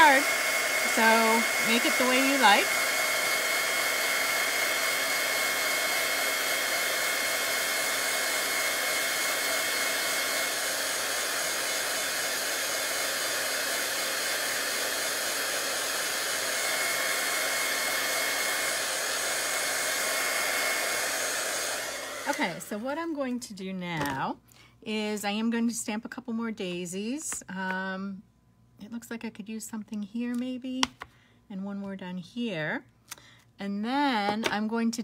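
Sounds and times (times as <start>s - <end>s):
heat gun blowing air: 0.0s - 22.8s.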